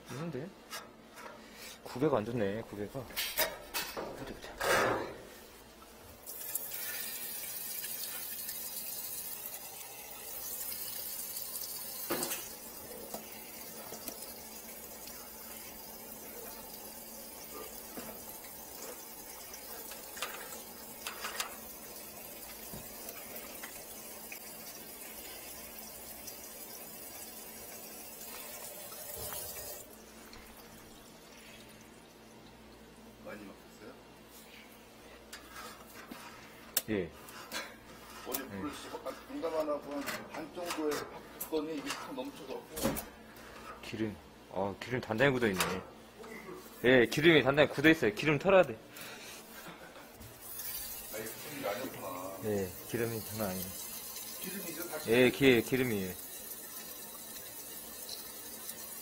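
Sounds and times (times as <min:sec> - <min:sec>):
tap water running into sink: 0:06.2 - 0:32.6, 0:50.3 - 0:59.0.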